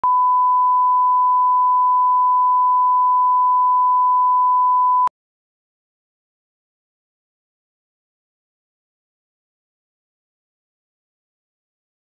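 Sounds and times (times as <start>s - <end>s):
steady test tone beep: 0.0s - 5.1s.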